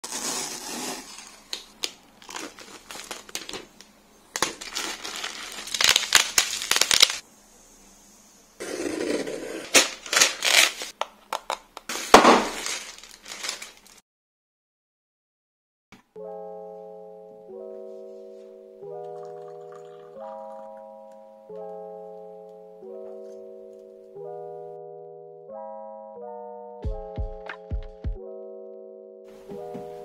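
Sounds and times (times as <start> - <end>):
cardboard tearing: 0.0 - 1.6, 2.2 - 3.6, 4.4 - 7.2, 8.6 - 10.9, 11.9 - 14.0
plastic packaging crinkling: 0.0 - 7.2, 9.5 - 14.0.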